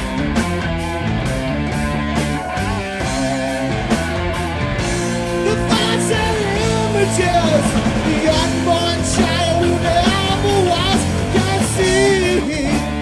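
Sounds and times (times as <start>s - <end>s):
drums: 0.0s - 13.0s
electric guitar: 0.0s - 13.0s
person singing: 5.3s - 13.0s.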